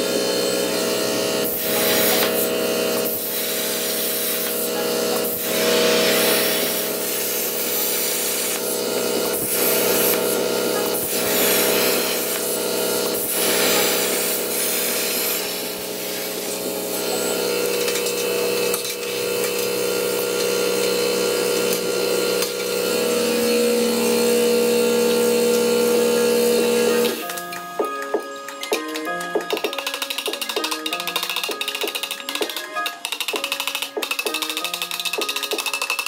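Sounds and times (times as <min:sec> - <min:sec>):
plasma cutter hissing: 0:01.0 - 0:19.4.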